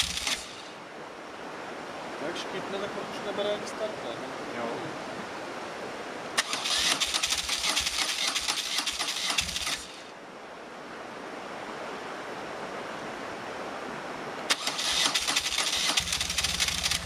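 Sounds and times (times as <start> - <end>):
motorcycle starter cranking engine: 0.0 - 0.6, 6.4 - 10.0, 14.5 - 17.0.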